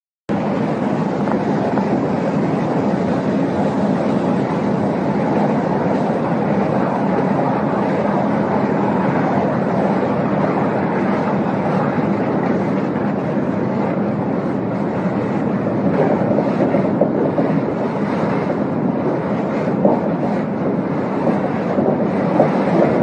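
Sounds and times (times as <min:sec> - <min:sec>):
drilling rig machinery din: 0:00.3 - 0:23.0
low machinery hum: 0:00.3 - 0:23.0.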